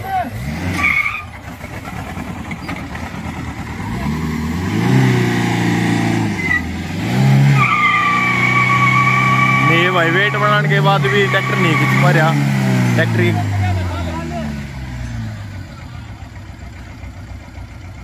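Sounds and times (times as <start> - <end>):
tyres squealing on tarmac: 0.0 - 1.4, 6.3 - 6.7, 7.4 - 14.3
diesel engines revving: 0.0 - 18.0.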